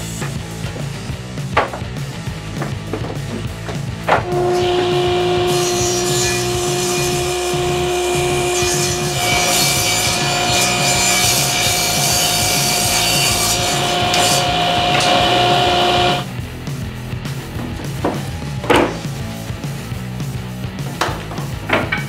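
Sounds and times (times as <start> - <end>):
saw blade cutting wood: 4.1 - 16.3
table saw running: 4.2 - 16.3.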